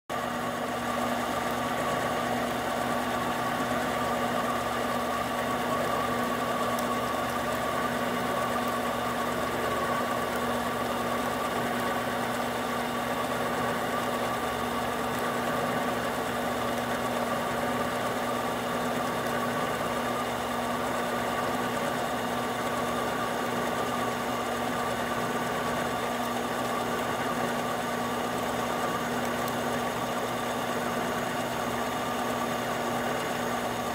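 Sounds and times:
lathe running with whine: 0:00.1 - 0:33.9.

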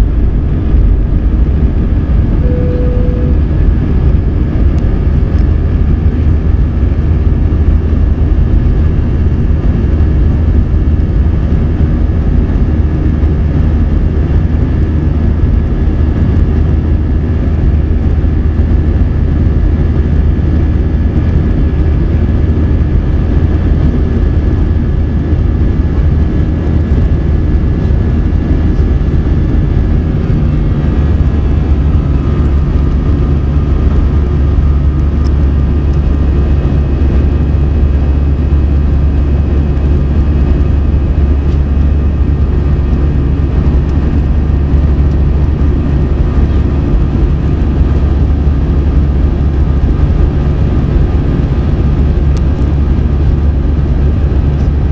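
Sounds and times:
high engine whine: 0:00.0 - 0:54.9
jet engines rumbling in cabin: 0:00.0 - 0:54.9
short single tone: 0:02.4 - 0:03.8.

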